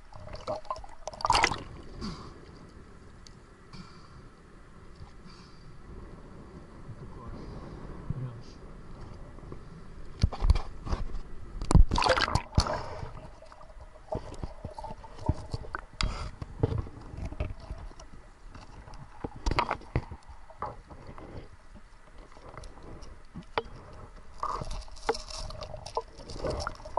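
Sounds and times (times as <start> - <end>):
water splashing and sloshing: 0.0 - 3.5, 9.0 - 26.9
muffled underwater knocks and clicks: 9.0 - 26.9.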